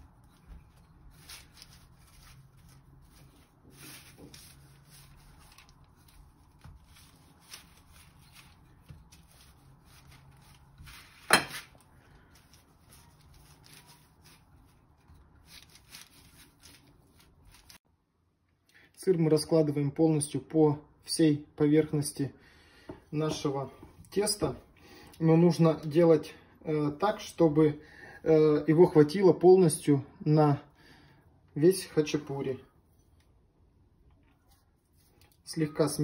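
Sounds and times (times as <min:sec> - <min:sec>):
rolling pin rubbing dough on paper: 0:00.6 - 0:17.8.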